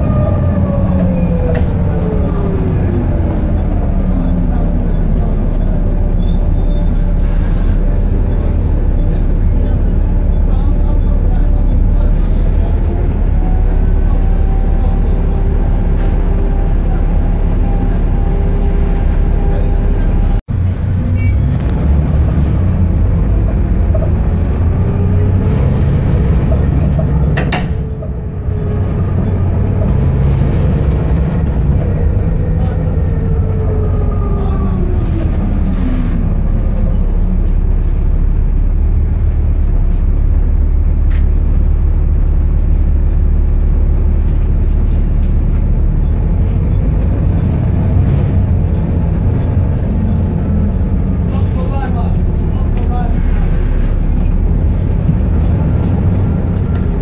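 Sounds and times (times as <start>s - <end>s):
bus engine rumble: 0.0s - 57.0s
brake squeals: 4.2s - 15.5s, 21.0s - 21.9s, 23.2s - 41.5s, 43.5s - 48.4s.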